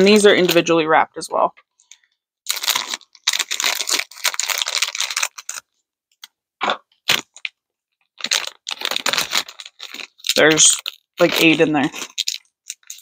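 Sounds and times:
plastic wrapper crinkling: 1.8s - 6.3s, 7.0s - 13.0s.

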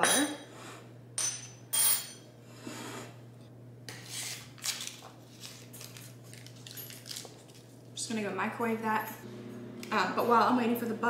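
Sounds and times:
paper wrapper rustling: 4.5s - 7.8s.

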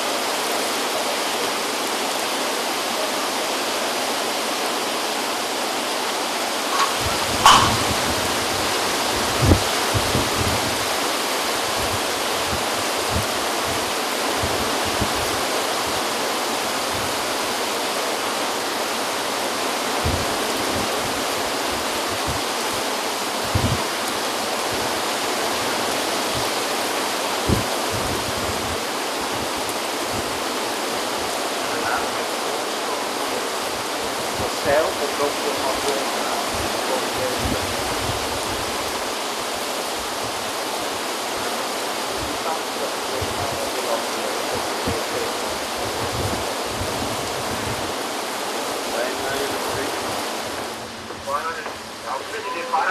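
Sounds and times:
heavy surf: 0.0s - 52.9s
rain: 0.0s - 52.9s
wind: 0.0s - 52.9s
short low thumps: 6.7s - 8.4s.

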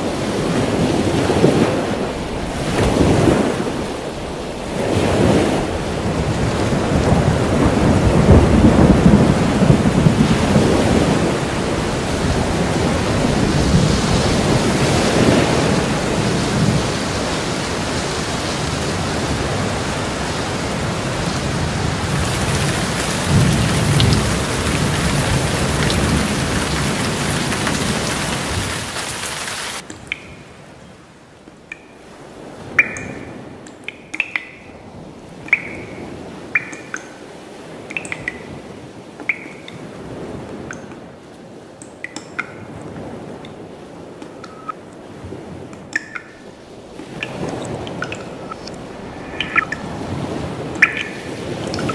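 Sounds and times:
low rolls of thunder: 0.0s - 28.6s
heavy rain: 0.0s - 31.5s, 32.1s - 51.9s
drip-like plinks: 29.8s - 30.6s, 31.6s - 32.1s, 32.7s - 39.9s, 40.6s - 41.1s, 41.8s - 43.6s, 44.2s - 44.8s, 45.7s - 49.9s, 50.7s - 51.9s.

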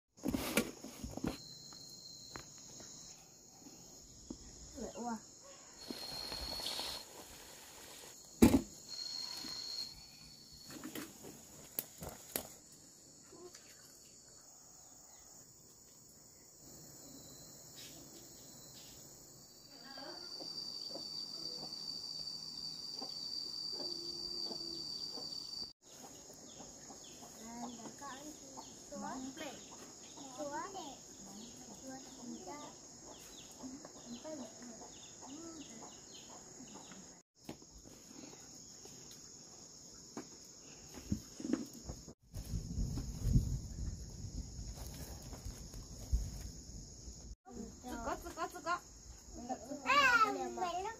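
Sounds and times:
insects chirring: 0.7s - 50.9s
piercing high insect trill: 1.3s - 14.7s, 15.6s - 25.8s.

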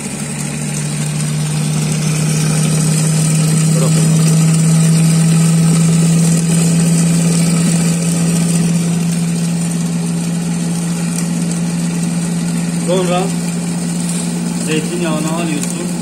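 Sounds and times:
electric mixer motor running: 0.0s - 16.0s.

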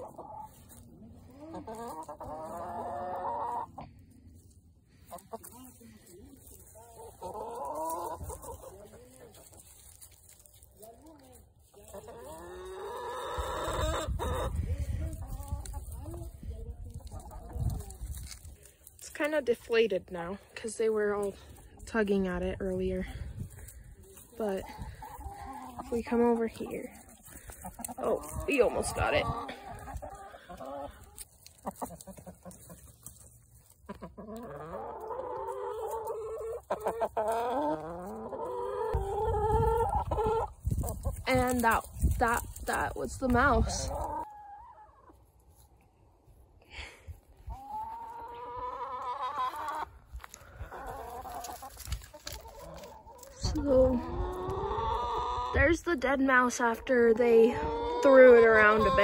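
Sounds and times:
chickens clucking and calling: 0.0s - 59.0s.

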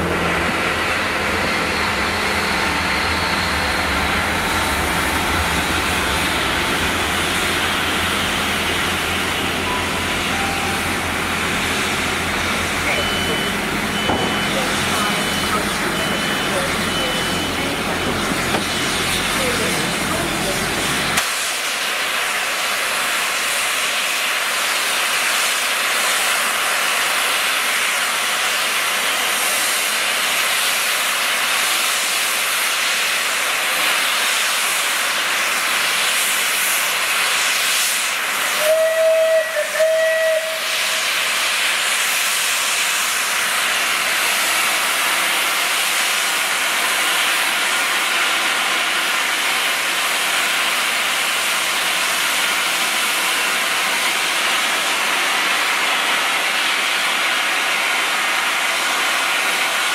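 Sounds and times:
steam hissing: 0.0s - 59.9s
steam whistle blast: 8.9s - 19.9s, 37.4s - 42.8s.

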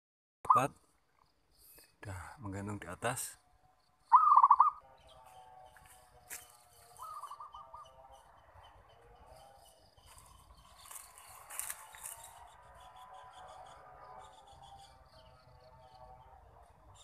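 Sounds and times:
dove cooing: 4.1s - 4.8s, 6.9s - 9.3s.

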